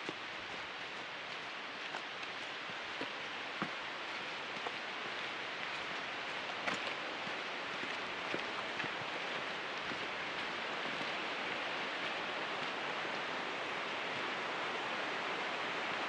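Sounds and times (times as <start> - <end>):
footsteps on dirt and rock: 0.0 - 12.8
waterfall rushing: 0.0 - 16.0.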